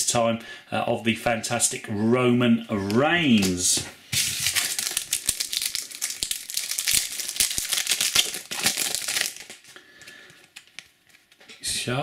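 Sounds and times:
foil pack tearing and crinkling: 4.2s - 10.8s.

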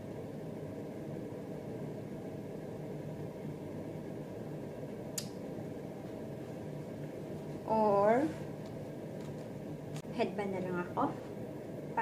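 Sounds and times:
air conditioning hum and hiss: 0.0s - 12.0s.

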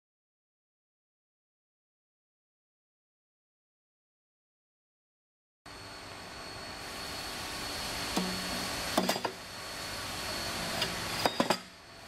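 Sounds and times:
steady machine noise: 5.7s - 12.0s.

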